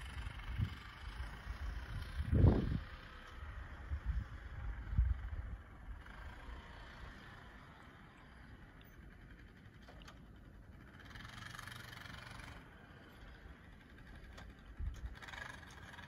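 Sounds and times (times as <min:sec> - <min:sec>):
distant utility vehicle engine: 0:00.0 - 0:16.0.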